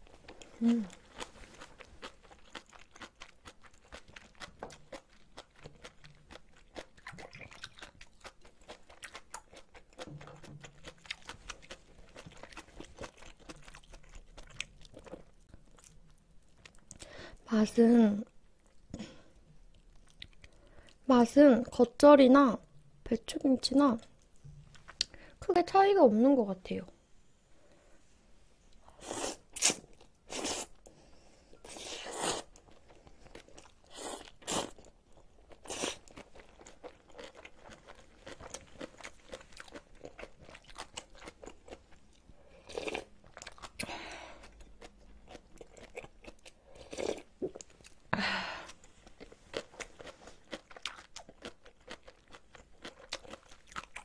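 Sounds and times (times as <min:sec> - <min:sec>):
wet chewing and crunching: 0:00.0 - 0:17.1, 0:31.7 - 0:48.1, 0:48.7 - 0:54.0.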